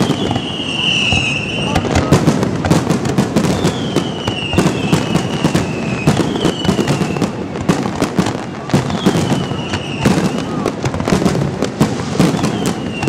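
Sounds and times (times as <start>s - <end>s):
high falling whistle: 0.0s - 1.9s, 12.2s - 13.0s
firework bangs and crackles: 0.0s - 13.0s.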